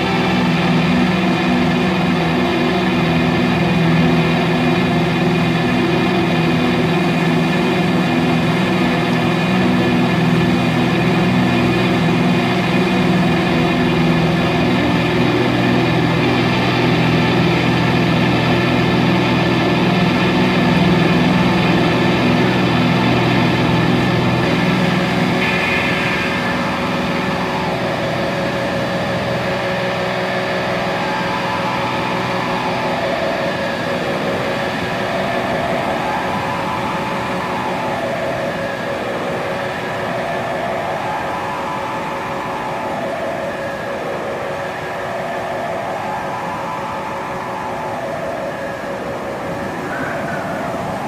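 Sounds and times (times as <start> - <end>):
synthesizer drone music: 0.0 - 51.0.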